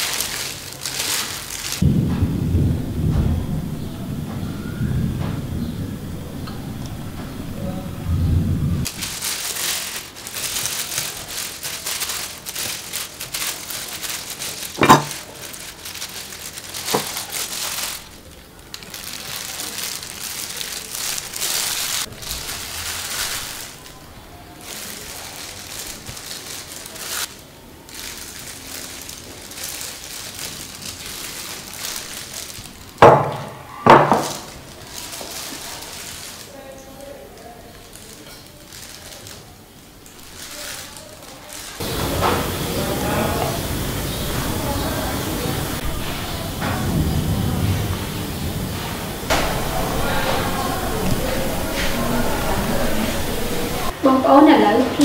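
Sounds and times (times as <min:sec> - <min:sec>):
plastic gloves rustling: 0:00.0 - 0:02.1, 0:05.6 - 0:55.0
dishes knocking: 0:14.8 - 0:15.2.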